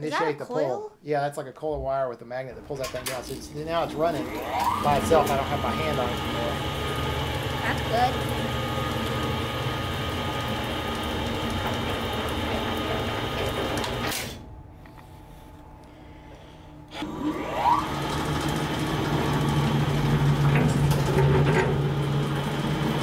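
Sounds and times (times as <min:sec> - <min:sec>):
electric motor humming: 0:02.5 - 0:14.2, 0:16.9 - 0:23.0
motor rising whine: 0:02.6 - 0:15.8, 0:16.8 - 0:23.0.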